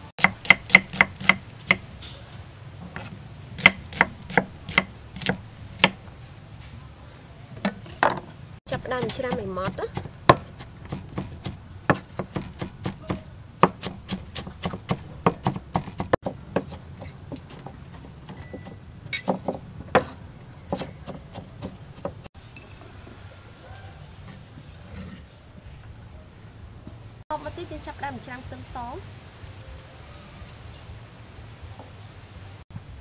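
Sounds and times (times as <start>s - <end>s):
cleaver chopping on wooden block: 0.2s - 1.8s, 3.6s - 6.0s, 8.8s - 22.2s.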